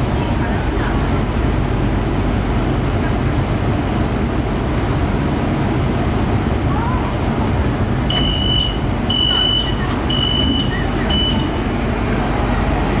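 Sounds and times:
low hum of stopped train: 0.0 - 13.0
train door warning beeps: 8.0 - 11.8.

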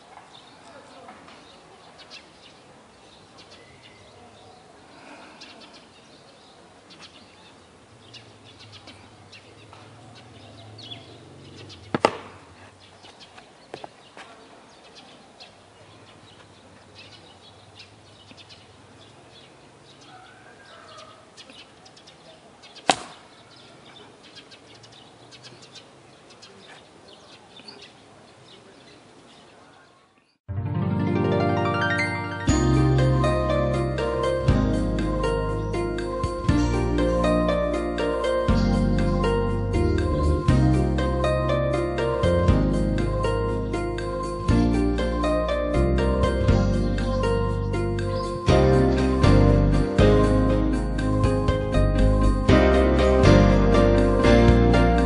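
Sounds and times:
sharp crack of strike: 11.9 - 12.5, 22.8 - 23.3.

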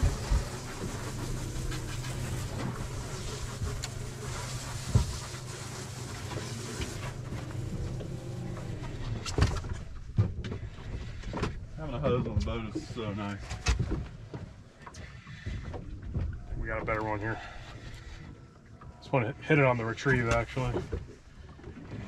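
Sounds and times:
water hiss: 0.0 - 9.2
boat motor idling: 0.0 - 13.3
wind: 0.0 - 22.0.

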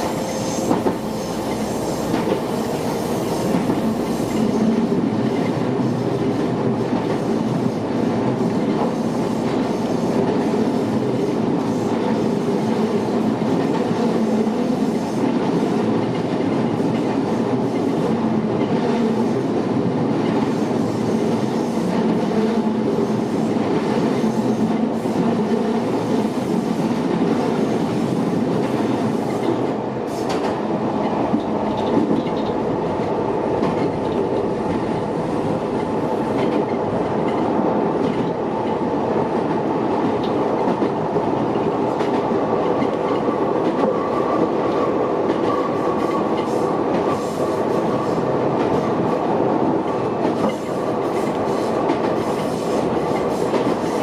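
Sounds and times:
train wheels and motors rumbling: 0.0 - 19.0
rail clacks: 0.0 - 54.0.

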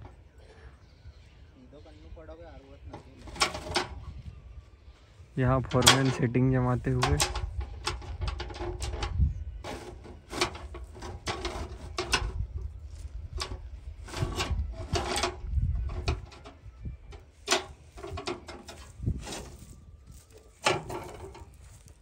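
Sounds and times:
wire rope clanking on metal: 2.9 - 4.1, 5.5 - 21.9.

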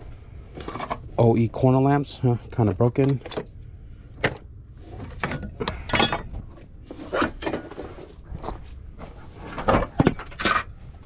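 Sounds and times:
steady low rumble: 0.0 - 6.9
clicks and clatters of car parts: 0.5 - 1.2, 2.5 - 11.0.

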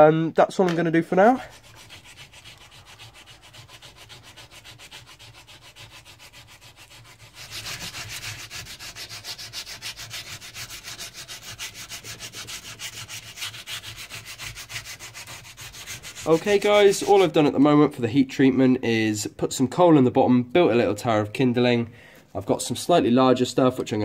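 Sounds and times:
hand sanding steel: 0.8 - 17.4.

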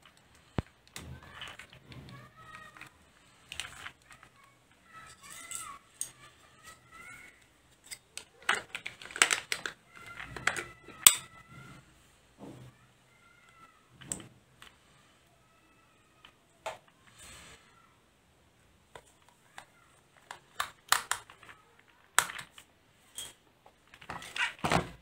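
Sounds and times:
plastic toy parts clicking: 0.0 - 11.3, 18.9 - 24.6.

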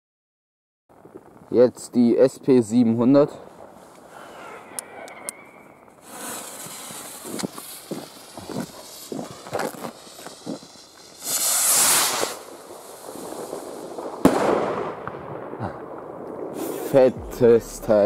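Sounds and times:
firework crackles and pops: 0.9 - 18.0
rocket hissing: 3.6 - 14.9.

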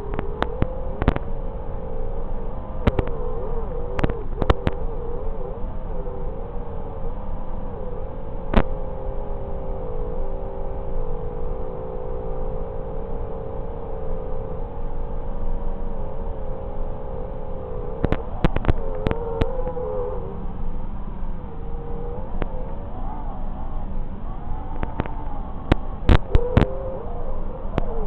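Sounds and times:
drone motors whining: 24.4 - 28.0.

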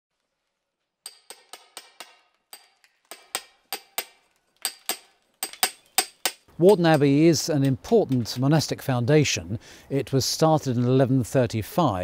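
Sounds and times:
hammer striking steel chisel: 1.0 - 8.6.

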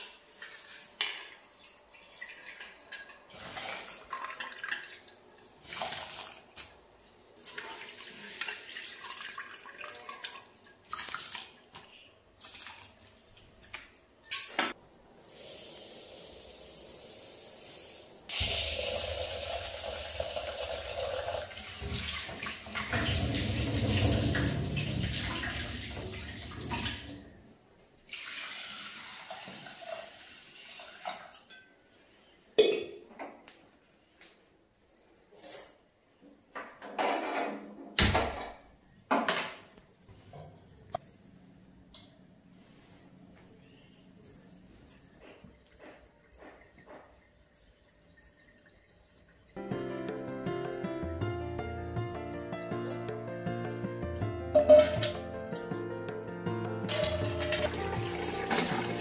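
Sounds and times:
water sloshing in a pot: 0.0 - 6.7, 7.3 - 13.6, 56.9 - 59.0
water poured into a steel pot: 7.6 - 11.5, 15.2 - 27.2, 28.1 - 31.3, 56.9 - 59.0
pots knocking: 54.5 - 55.2
tap running: 56.9 - 59.0.

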